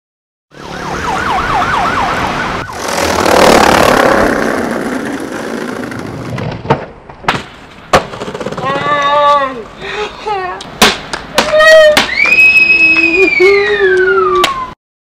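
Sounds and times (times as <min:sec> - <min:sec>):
siren wailing: 0:00.5 - 0:02.9
loud rushing noise: 0:02.0 - 0:06.4
skateboard clacks: 0:04.5 - 0:09.5, 0:10.7 - 0:12.4.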